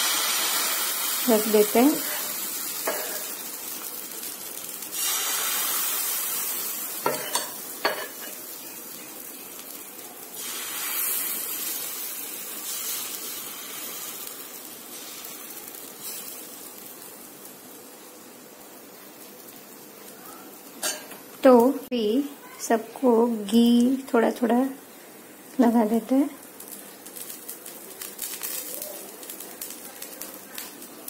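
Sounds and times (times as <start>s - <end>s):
batter sizzling on a pan: 0.0s - 31.0s.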